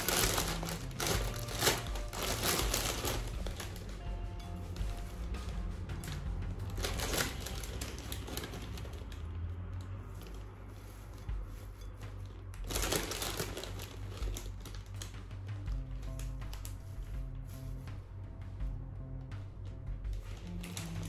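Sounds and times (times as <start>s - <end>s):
leaves rustling: 0.0s - 4.0s, 4.7s - 9.3s
plastic bag crinkling: 0.0s - 4.1s, 5.9s - 9.4s, 10.0s - 15.3s, 20.1s - 21.0s.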